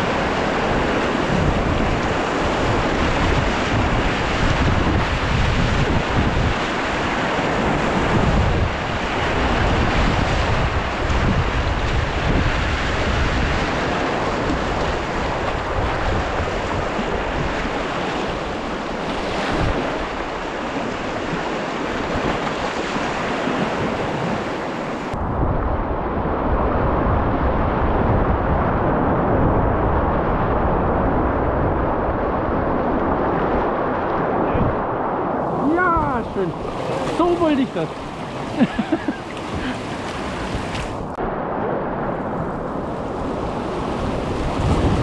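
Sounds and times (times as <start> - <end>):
wind buffeting microphone: 0.0 - 45.0
river rapids rushing: 35.4 - 41.1.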